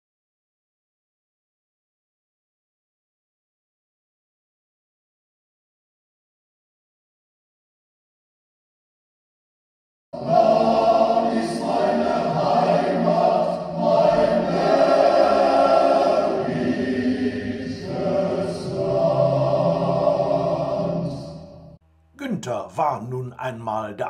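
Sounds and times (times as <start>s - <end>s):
choir singing slow song: 10.2s - 21.8s.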